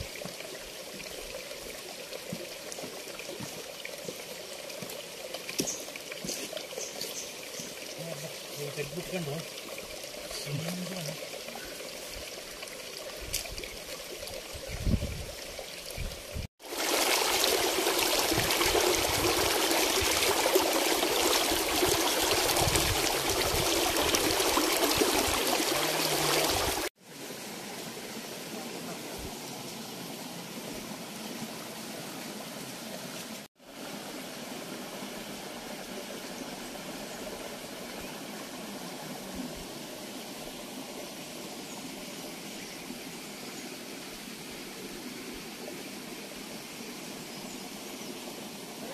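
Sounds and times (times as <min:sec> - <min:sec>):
stream splashing over boulders: 0:00.0 - 0:48.9.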